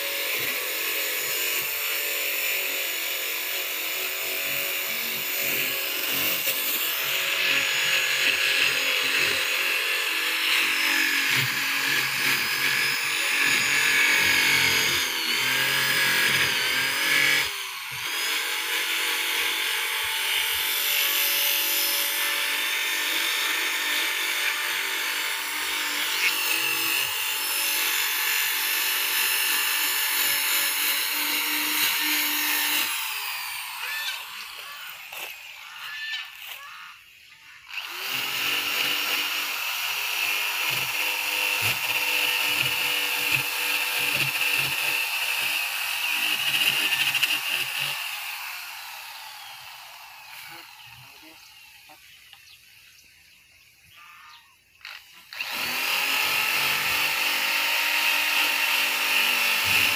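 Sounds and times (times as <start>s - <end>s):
electric motor whining: 2.8s - 52.5s, 54.0s - 59.9s.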